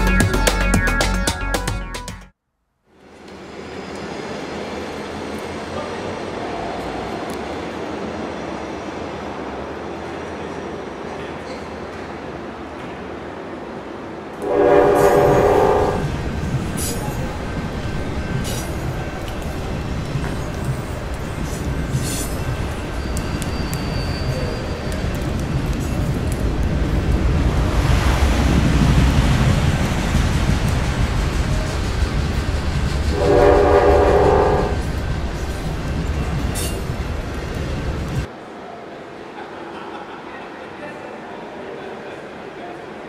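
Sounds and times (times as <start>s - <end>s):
rumble of moving train: 2.9s - 43.0s
train horn: 14.4s - 16.2s, 33.1s - 35.0s.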